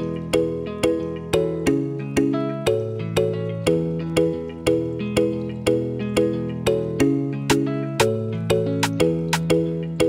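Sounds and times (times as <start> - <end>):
instrumental music with steady beat: 0.0 - 10.0.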